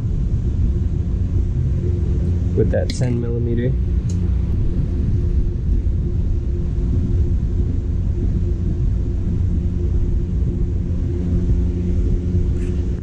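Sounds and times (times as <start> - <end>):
electric fan running: 0.0 - 13.0.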